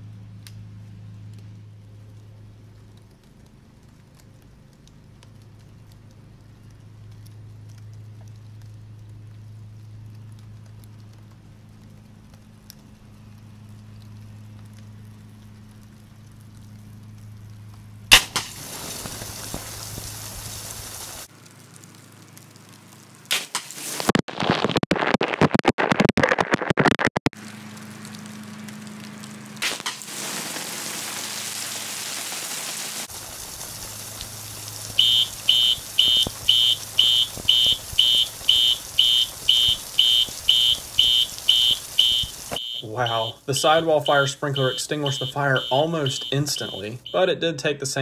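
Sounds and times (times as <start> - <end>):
sprinkler bulb cracking: 2.2 - 25.4, 27.4 - 47.2
water spraying hiss: 18.2 - 21.3, 29.6 - 47.1
fire alarm horn pulsing: 35.0 - 47.3.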